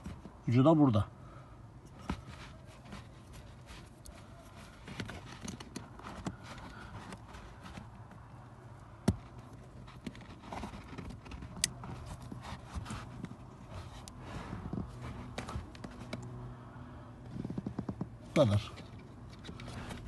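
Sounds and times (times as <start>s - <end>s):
cable rustling: 1.8s - 16.4s.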